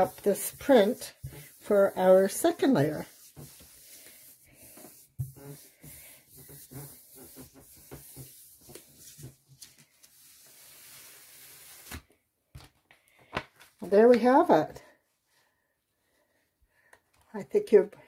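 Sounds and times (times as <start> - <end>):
paper rustling: 5.0 - 13.9.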